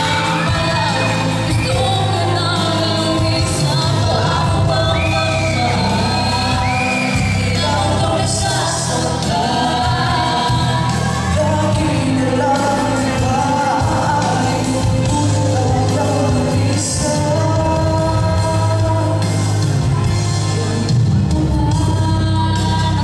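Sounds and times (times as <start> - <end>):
amplified backing music: 0.0 - 23.0
vocal duet singing: 0.0 - 23.0.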